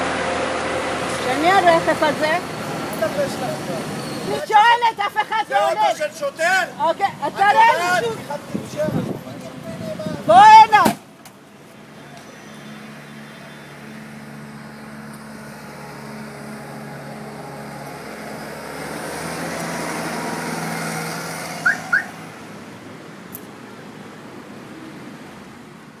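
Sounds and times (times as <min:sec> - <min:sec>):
loader engine running: 0:00.0 - 0:04.3, 0:12.3 - 0:22.8.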